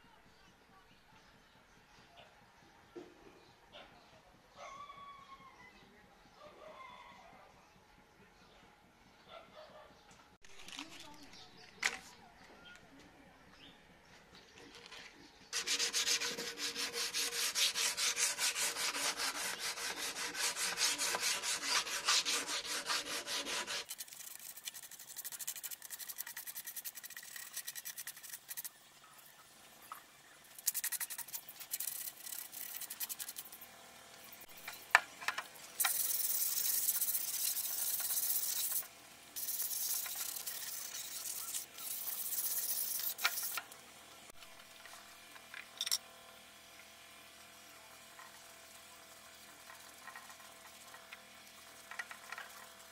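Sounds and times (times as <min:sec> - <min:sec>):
sandpaper rubbing wood: 0:15.6 - 0:28.7, 0:30.6 - 0:33.6, 0:35.8 - 0:43.7.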